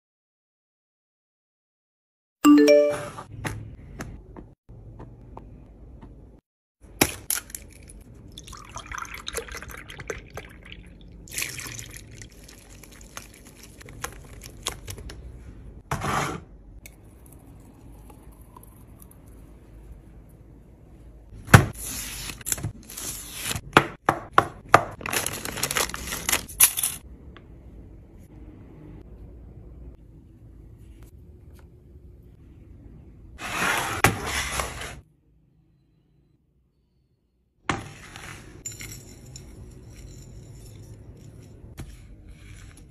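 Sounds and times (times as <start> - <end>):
plastic packet crackling: 25.0 - 26.5.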